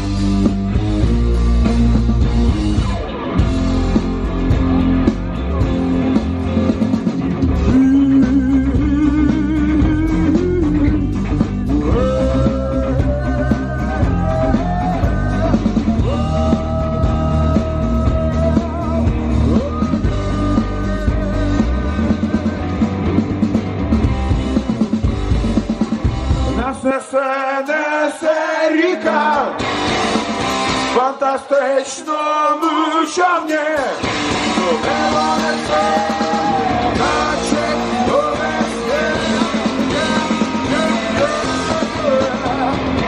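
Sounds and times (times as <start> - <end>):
bass: 0.0 - 43.0
drums: 0.0 - 43.0
electric guitars: 0.0 - 43.0.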